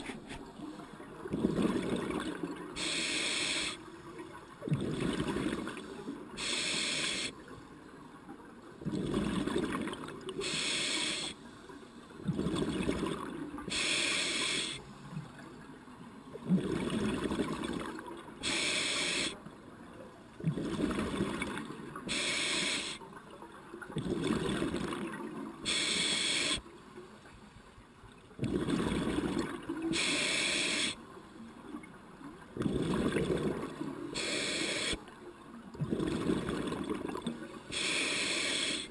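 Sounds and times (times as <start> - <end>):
exhaled bubbles rumbling: 1.1 - 2.7, 8.8 - 10.3, 12.2 - 13.6, 16.4 - 18.1, 28.4 - 29.9, 32.5 - 34.1, 35.8 - 37.5
regulator inhale hiss: 2.8 - 3.9, 5.9 - 7.4, 10.4 - 11.9, 13.7 - 15.0, 18.4 - 19.4, 22.1 - 23.0, 25.6 - 26.6, 29.9 - 31.0, 34.2 - 35.0, 37.6 - 38.9.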